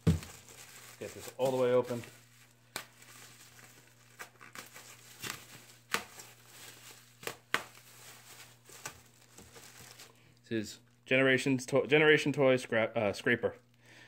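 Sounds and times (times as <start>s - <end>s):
bubble wrap crackles: 0.0s - 10.4s
bubble wrap crinkling: 0.0s - 11.0s.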